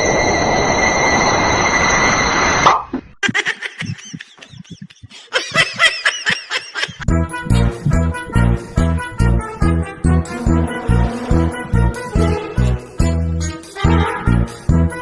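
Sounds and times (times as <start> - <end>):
person laughing: 3.2 - 7.1.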